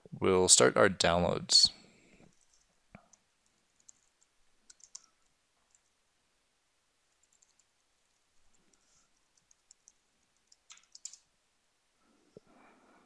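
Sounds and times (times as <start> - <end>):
keyboard typing: 2.3 - 5.9, 7.1 - 11.3.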